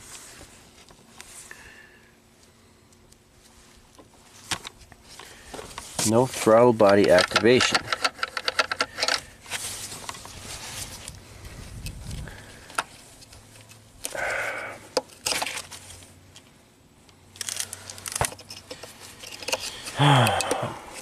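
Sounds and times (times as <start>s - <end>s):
gloves rustling and scraping plastic: 3.3s - 16.6s, 17.3s - 20.0s.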